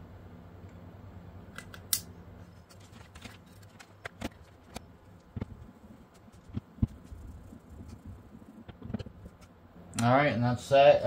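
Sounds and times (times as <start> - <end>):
plastic faceplate handled: 2.6 - 8.0.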